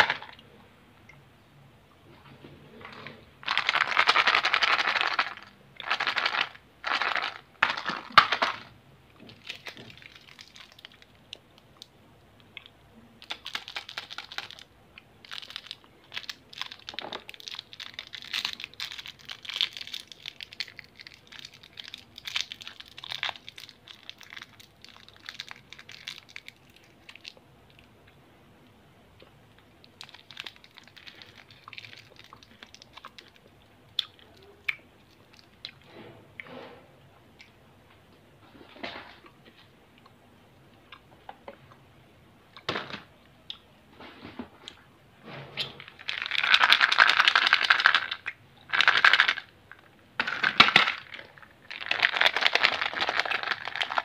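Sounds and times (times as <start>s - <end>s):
candy wrapper crackling: 3.4s - 8.7s, 9.3s - 11.8s, 13.2s - 27.9s, 29.8s - 34.5s, 45.9s - 54.0s
foil crinkling: 13.2s - 27.3s, 51.7s - 54.0s.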